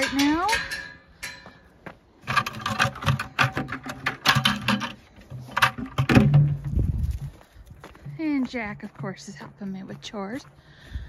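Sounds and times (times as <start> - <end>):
footsteps crunching on frozen snow: 6.7 - 10.9.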